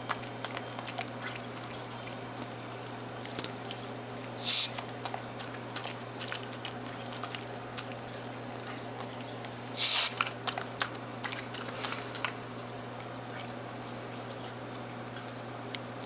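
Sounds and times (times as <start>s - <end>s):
dog licking and smacking: 0.0s - 16.0s
aerosol can spray hiss: 9.8s - 10.2s.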